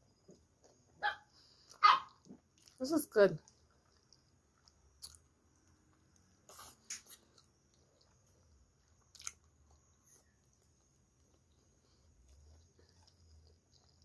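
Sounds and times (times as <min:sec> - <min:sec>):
chewing food: 0:00.0 - 0:14.0
wet mouth smacks: 0:05.0 - 0:05.2, 0:06.4 - 0:07.2.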